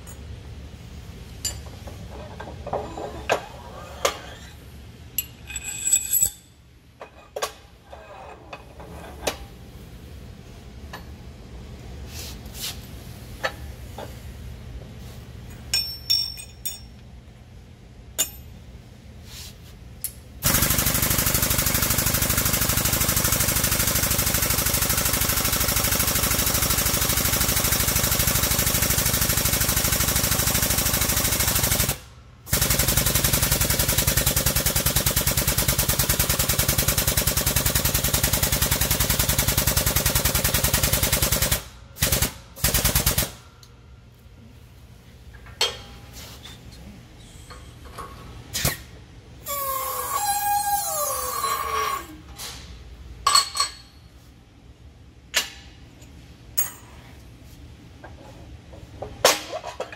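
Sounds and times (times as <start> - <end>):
light metal clinks: 15.7 - 17.0.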